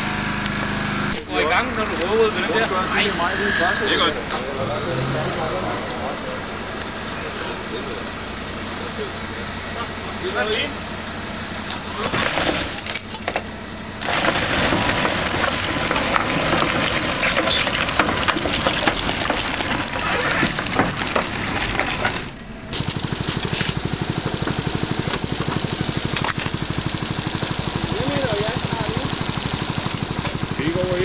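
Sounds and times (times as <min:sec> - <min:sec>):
small engine chugging: 0:00.0 - 0:31.0
crunching and scraping metal: 0:11.6 - 0:31.0.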